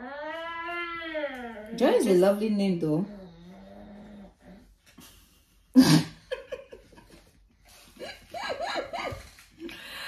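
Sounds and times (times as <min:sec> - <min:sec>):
women laughing: 0:05.8 - 0:10.0.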